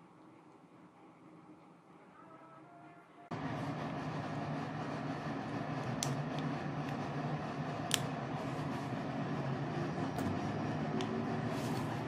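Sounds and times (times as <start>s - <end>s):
steady low hum: 3.3s - 12.0s.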